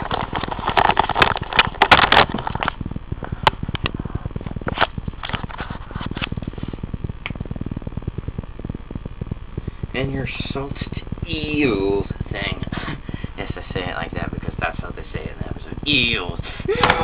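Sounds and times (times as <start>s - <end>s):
sharp clicks: 0.0s - 10.0s
fast crackling tick: 0.0s - 17.0s.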